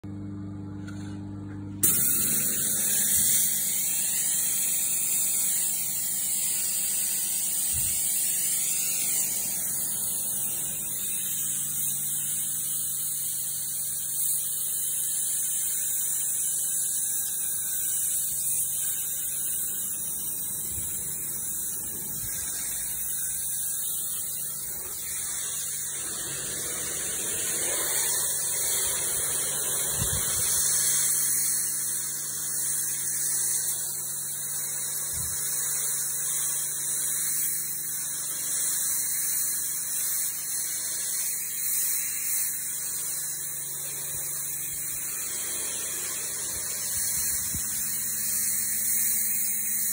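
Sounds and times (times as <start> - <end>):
pressure washer machine hum: 0.0 - 49.9
water spray hissing on stone: 1.8 - 49.9.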